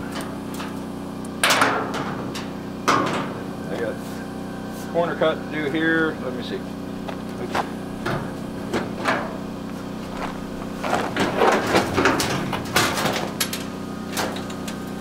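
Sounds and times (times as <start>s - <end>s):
sheet metal clattering and scraping: 1.4s - 3.5s, 7.3s - 14.8s.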